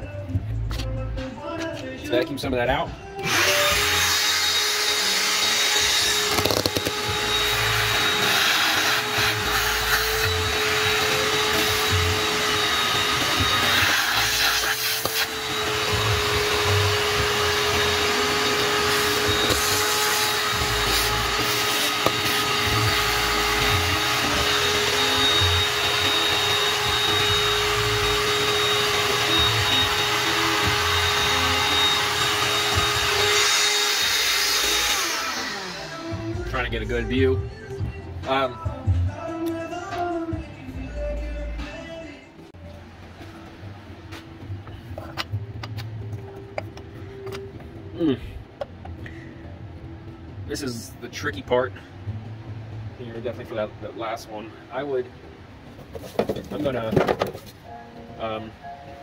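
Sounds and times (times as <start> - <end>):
shop vacuum motor whine: 3.2 - 36.7.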